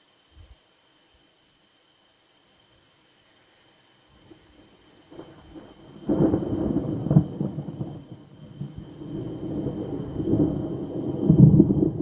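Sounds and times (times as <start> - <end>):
rolling thunder: 5.2 - 12.0
thunder clap: 6.1 - 12.0.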